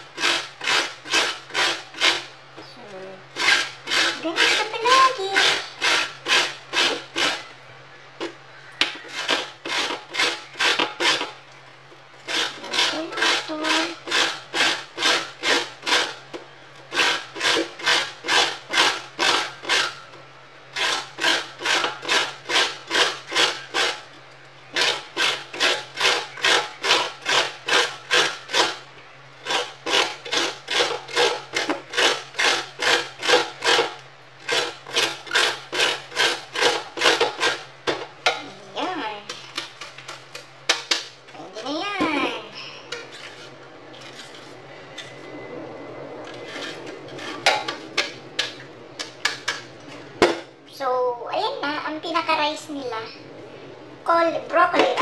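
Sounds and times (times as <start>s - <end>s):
grater rasping strokes: 0.0s - 2.3s, 3.4s - 7.5s, 9.0s - 11.4s, 12.2s - 16.3s, 16.9s - 20.0s, 20.7s - 24.1s, 24.7s - 28.8s, 29.4s - 37.7s, 46.3s - 49.6s
steady low hum: 0.0s - 55.0s.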